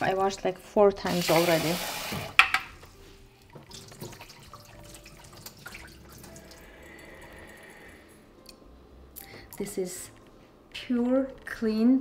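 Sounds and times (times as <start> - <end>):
water dripping: 3.4 - 7.8
small splashes: 3.6 - 6.6.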